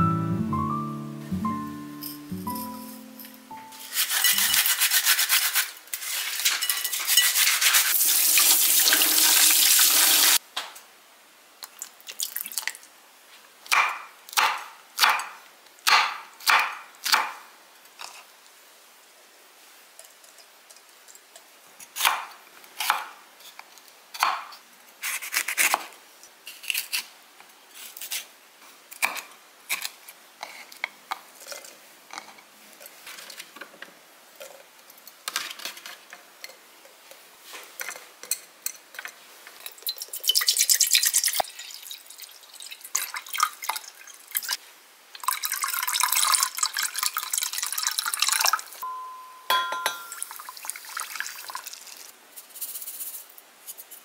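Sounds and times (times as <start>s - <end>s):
water pouring into pot: 7.3s - 10.4s, 39.7s - 44.6s, 45.2s - 48.8s, 50.1s - 52.1s.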